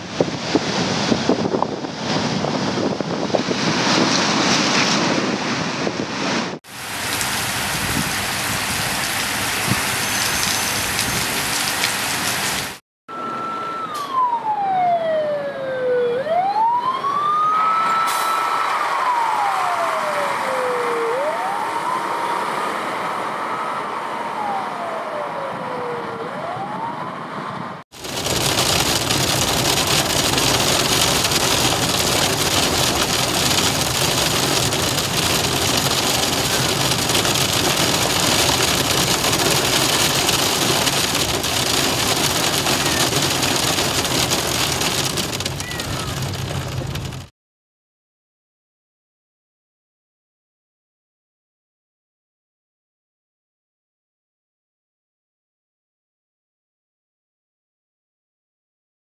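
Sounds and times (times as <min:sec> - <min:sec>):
heavy rain on windscreen: 0:00.0 - 0:12.8, 0:27.9 - 0:47.3
tyres on wet road: 0:00.0 - 0:14.8, 0:16.8 - 0:26.6, 0:27.9 - 0:47.3
fire engine siren wailing: 0:13.1 - 0:27.8.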